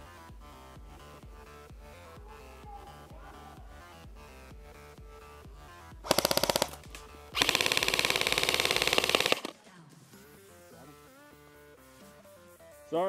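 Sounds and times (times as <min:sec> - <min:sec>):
electric rifle full-auto bursts: 0:06.1 - 0:09.6.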